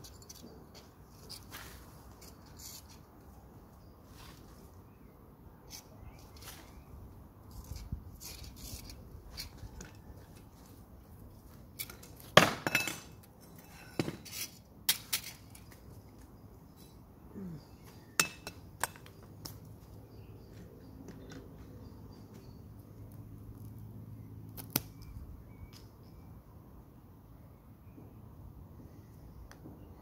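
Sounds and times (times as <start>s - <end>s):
garden fork scratching soil: 7.5s - 10.5s.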